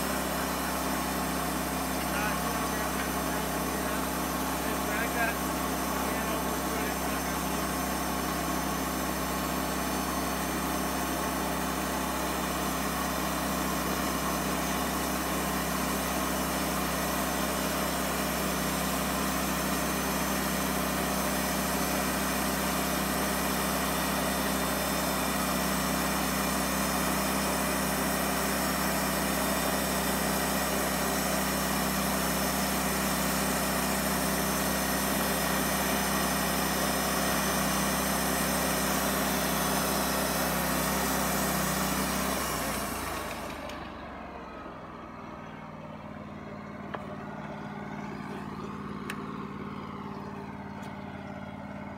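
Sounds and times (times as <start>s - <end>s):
band sawmill drone: 0.0s - 51.9s.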